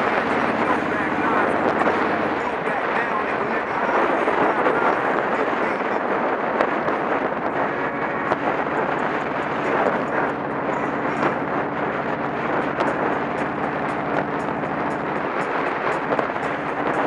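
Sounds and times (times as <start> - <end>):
motorcycle engine running: 0.0 - 2.6, 10.1 - 15.4
wind rush on microphone: 0.0 - 17.0.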